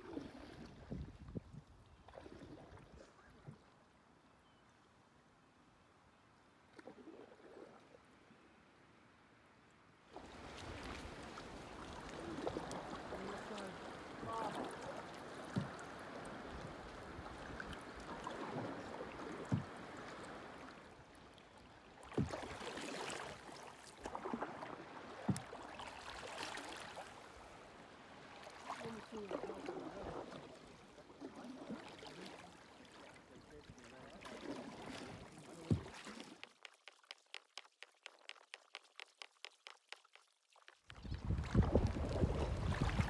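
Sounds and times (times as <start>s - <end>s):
paddle swishing water: 0.0s - 3.8s, 6.7s - 8.0s, 10.1s - 43.0s.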